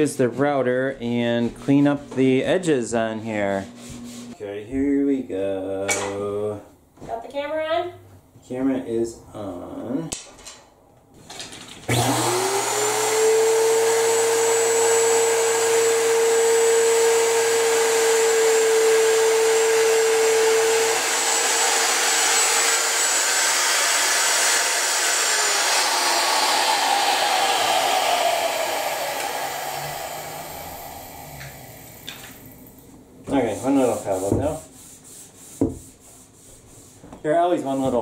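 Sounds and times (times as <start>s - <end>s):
wood router motor whine: 11.9s - 32.6s.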